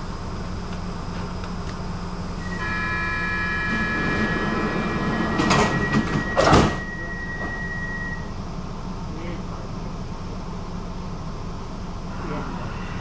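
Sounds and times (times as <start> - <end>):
train hum: 0.0 - 13.0
steady high door warning tones: 2.3 - 8.4, 12.0 - 13.0
train doors clattering shut: 3.6 - 7.7.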